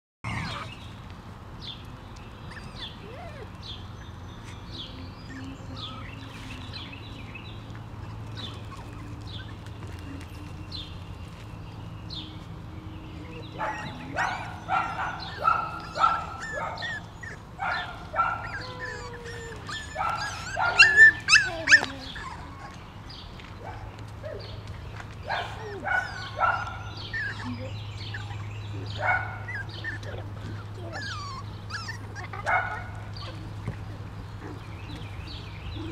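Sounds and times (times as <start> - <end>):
puppies yipping and barking: 0.2 - 1.0, 2.2 - 24.6, 25.2 - 35.9
puppy whines: 0.3 - 0.8, 2.5 - 3.6, 4.4 - 6.5, 8.0 - 10.6, 15.3 - 17.4, 18.3 - 22.8, 27.1 - 28.9, 29.5 - 32.6.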